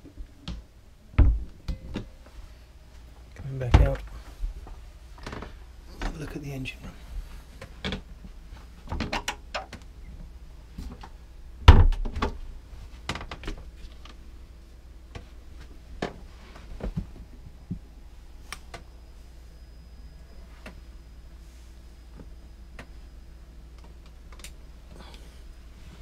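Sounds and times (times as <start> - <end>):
heavy thump: 1.2 - 1.5
wooden doors knocking and clicking: 1.2 - 1.5.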